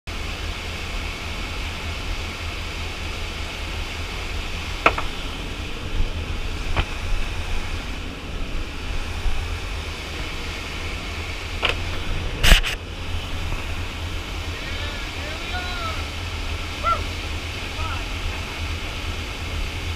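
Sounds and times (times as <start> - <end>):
motor yacht engine drone: 0.1 - 19.9
rushing wind: 0.1 - 19.9
water noise: 0.1 - 19.9.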